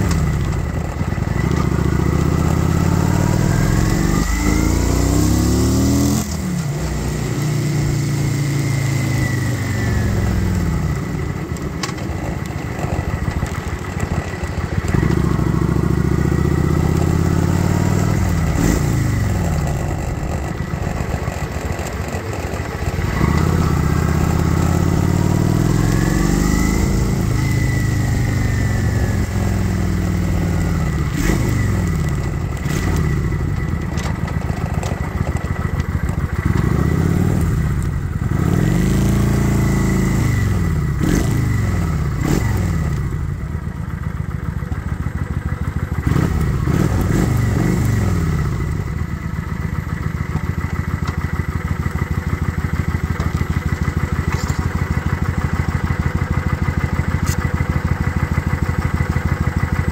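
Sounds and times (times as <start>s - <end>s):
motorcycle engine revving: 0.0s - 59.9s.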